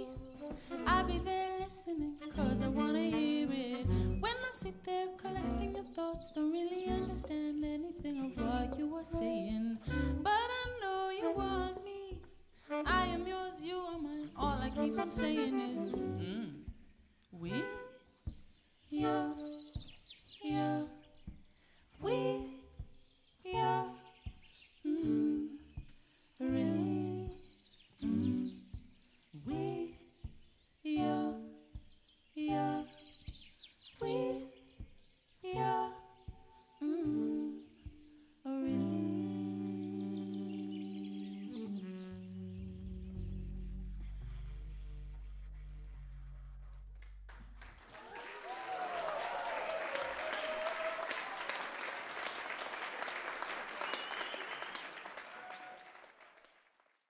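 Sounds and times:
woman singing short phrases: 0.0 - 16.7, 17.4 - 17.9
audience applause: 47.3 - 57.0
voices cheering: 47.8 - 56.4
high whistle: 53.7 - 56.0.

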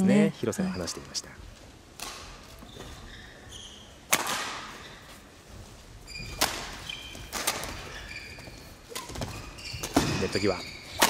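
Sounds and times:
shoes squeaking on court floor: 2.2 - 11.0
rackets hitting shuttlecock: 4.1 - 4.8, 6.3 - 7.9.

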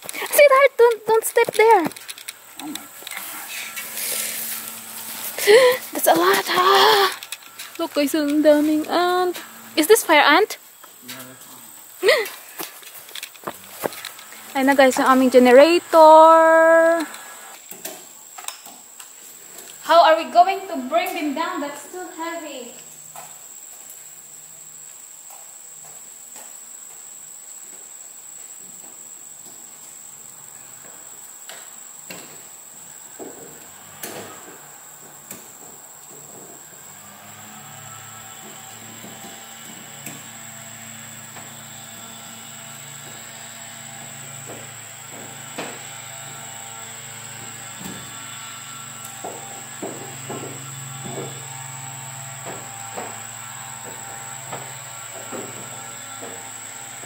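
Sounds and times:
faint high whine: 0.0 - 17.7
low mechanical hum: 0.0 - 18.4, 27.2 - 57.0
crickets chirping: 0.0 - 57.0.

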